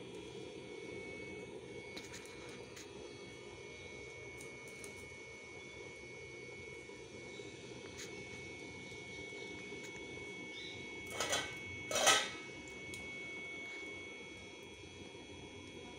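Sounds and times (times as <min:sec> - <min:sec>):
stove blower rush and whine: 0:00.0 - 0:15.9.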